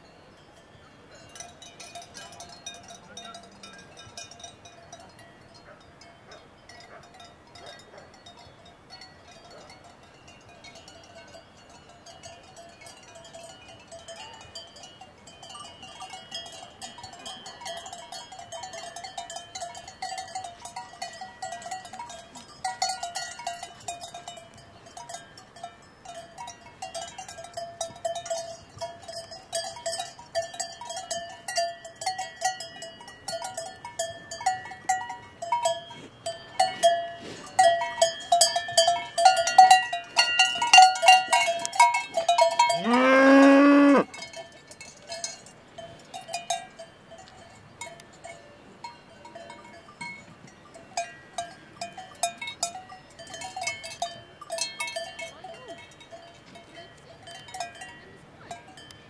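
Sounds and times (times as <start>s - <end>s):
cowbells clanking: 0.0s - 59.0s
cow mooing: 42.8s - 44.1s.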